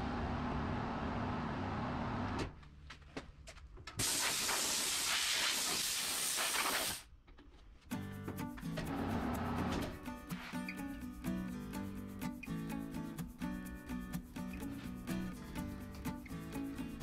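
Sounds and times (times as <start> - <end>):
compressed air hissing: 4.0 - 7.0
background music: 7.9 - 17.0.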